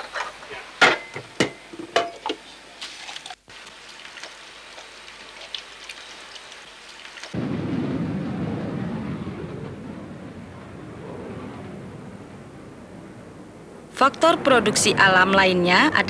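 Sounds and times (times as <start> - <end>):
jet engines rumbling: 7.3 - 16.0.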